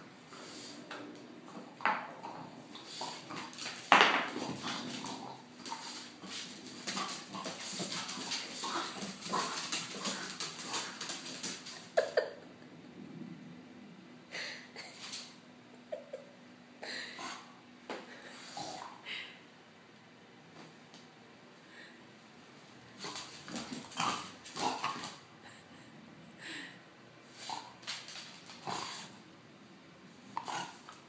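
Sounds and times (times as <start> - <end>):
dog claws clicking on wooden floor: 27.8 - 28.7
dog snorting and grunting: 30.4 - 31.0.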